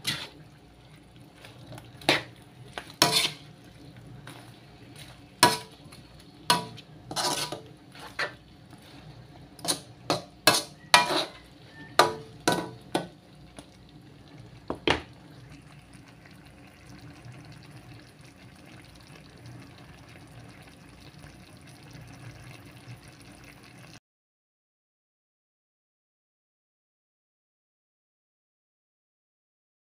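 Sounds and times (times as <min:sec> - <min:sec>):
metal spoon scraping a wok: 0:00.0 - 0:00.4, 0:01.5 - 0:03.6, 0:04.2 - 0:13.1
faint hiss from pan: 0:00.0 - 0:16.0.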